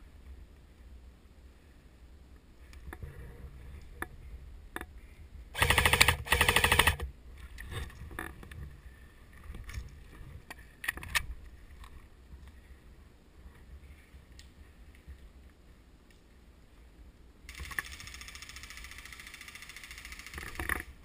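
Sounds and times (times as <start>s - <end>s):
airsoft rifle full-auto bursts: 5.6s - 7.1s, 17.5s - 20.6s.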